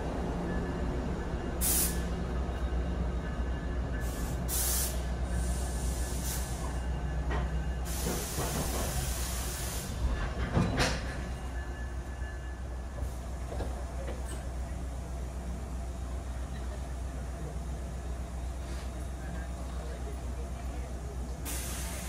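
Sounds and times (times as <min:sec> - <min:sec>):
train low rumble: 0:00.0 - 0:22.0
air brakes hissing: 0:01.6 - 0:02.1, 0:04.0 - 0:06.8, 0:07.8 - 0:10.2, 0:21.4 - 0:22.0.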